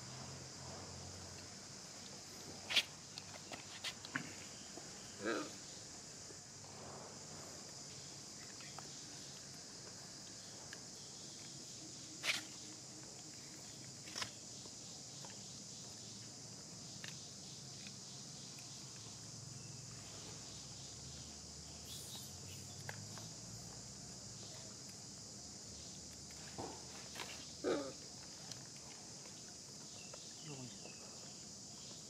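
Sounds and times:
high-pitched insect chorus: 0:00.0 - 0:32.0.

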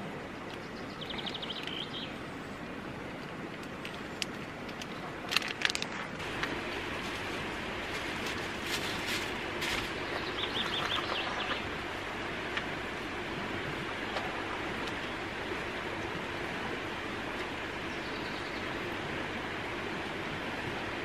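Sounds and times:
rushing water: 0:00.0 - 0:21.0
bird chirping: 0:00.6 - 0:02.2, 0:09.9 - 0:11.8, 0:17.8 - 0:18.8.

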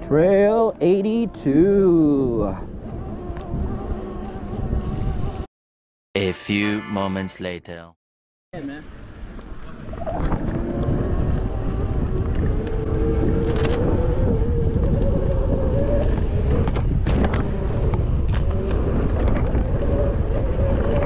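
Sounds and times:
bike whirring: 0:00.8 - 0:05.5, 0:08.9 - 0:21.0
wind buffeting microphone: 0:01.2 - 0:05.5, 0:09.0 - 0:21.0.

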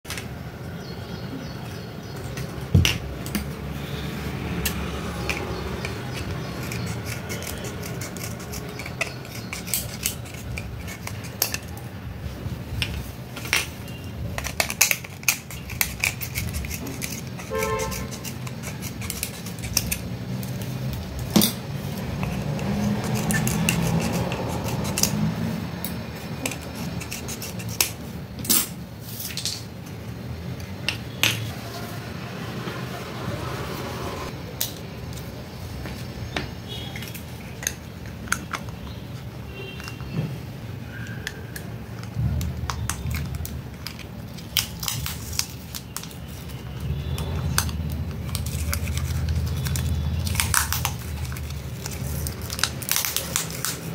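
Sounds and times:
scissors snipping plastic: 0:13.6 - 0:25.2, 0:41.1 - 0:46.5, 0:47.1 - 0:53.9.

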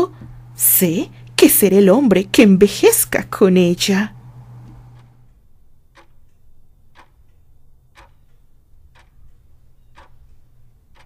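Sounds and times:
low steady hum: 0:00.0 - 0:11.0
clock ticking: 0:04.9 - 0:11.0.

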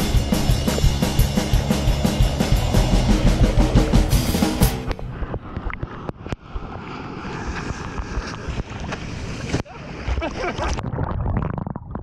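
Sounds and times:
waves breaking: 0:00.0 - 0:10.8
water sloshing and splashing: 0:04.6 - 0:12.0.

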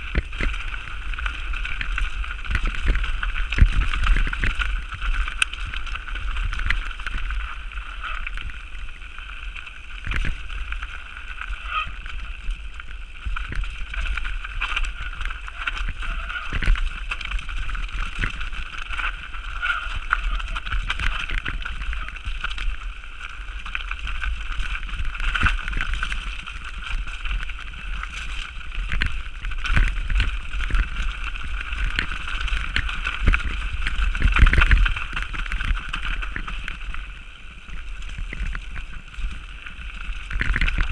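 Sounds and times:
bike knocks and rattles: 0:00.0 - 0:07.6, 0:10.0 - 0:10.8, 0:23.7 - 0:37.0
wind buffeting microphone: 0:00.0 - 0:09.2, 0:09.9 - 0:40.9
bike tyres on loose ground: 0:00.0 - 0:40.9.

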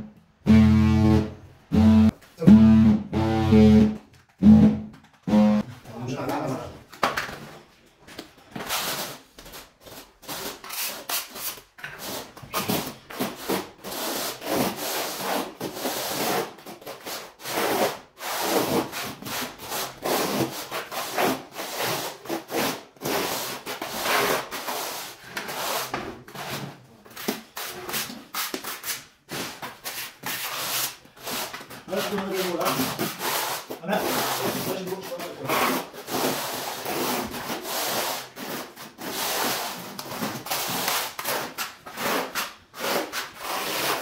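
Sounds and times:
trowels scraping cement adhesive: 0:27.2 - 0:44.0.

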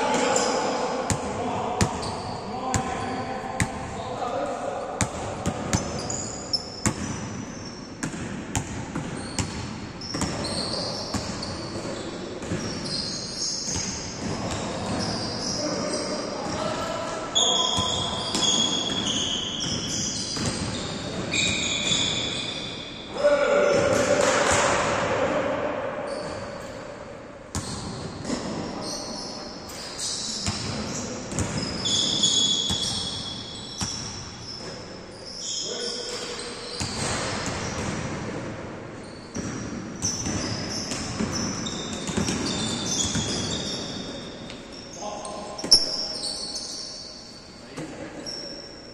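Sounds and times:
basketball bouncing in a hall: 0:00.0 - 0:47.1
sneakers squeaking on court: 0:00.1 - 0:04.1, 0:04.8 - 0:23.1, 0:26.1 - 0:26.9, 0:27.5 - 0:38.2, 0:39.0 - 0:48.9
basketball bouncing on hard court: 0:01.1 - 0:02.1, 0:05.0 - 0:06.2, 0:06.8 - 0:07.4, 0:08.0 - 0:12.8, 0:30.4 - 0:33.0, 0:36.8 - 0:38.4, 0:39.3 - 0:43.6.

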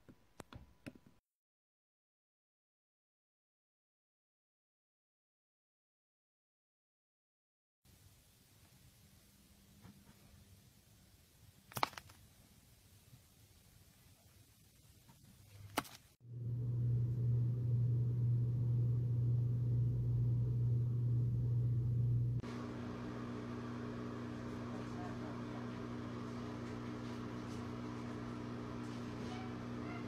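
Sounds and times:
loud low hum: 0:16.2 - 0:30.0.

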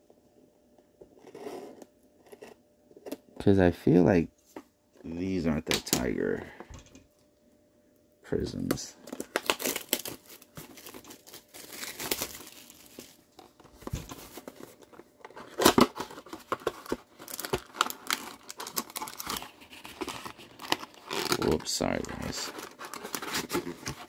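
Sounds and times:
plastic wrapper tearing and crinkling: 0:09.0 - 0:24.0.

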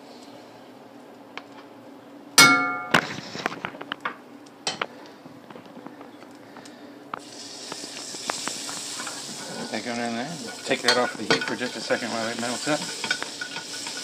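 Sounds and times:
metal cookware clang: 0:02.4 - 0:03.0, 0:10.6 - 0:12.1
utensils clinking and tapping: 0:10.4 - 0:14.0.

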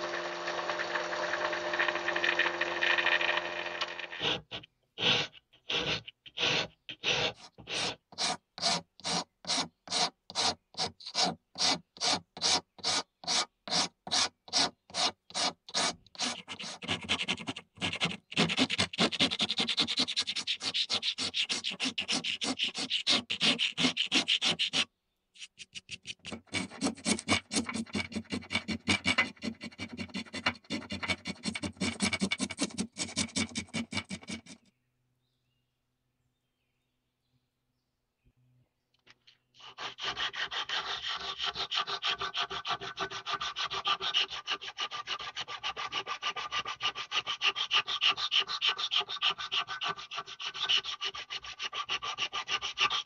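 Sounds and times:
disc sander on wood: 0:00.0 - 0:06.6
hand rasp scraping wood: 0:00.0 - 0:34.7, 0:39.6 - 0:53.0.

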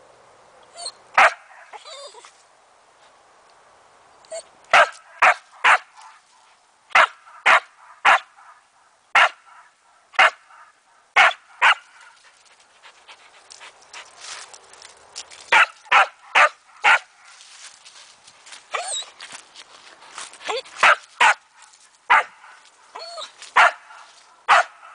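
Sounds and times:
dog barking: 0:01.2 - 0:01.8, 0:04.7 - 0:06.2, 0:07.0 - 0:08.6, 0:09.2 - 0:12.0, 0:15.5 - 0:17.1, 0:20.8 - 0:21.4, 0:22.1 - 0:22.6, 0:23.6 - 0:24.9.

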